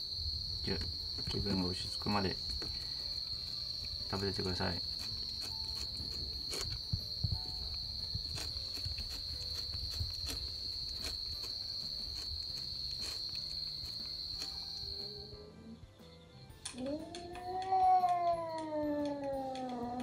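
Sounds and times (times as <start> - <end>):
high-pitched insect trill: 0.0 - 15.4.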